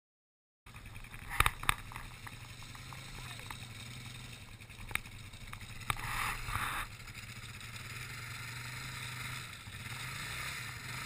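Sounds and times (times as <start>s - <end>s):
quad engine running: 0.7s - 11.0s
short rushing noise: 6.0s - 7.0s.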